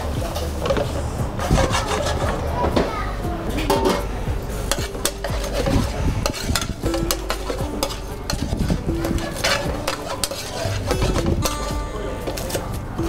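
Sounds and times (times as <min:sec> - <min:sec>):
metal spoon clinking on pan: 0:04.7 - 0:12.6.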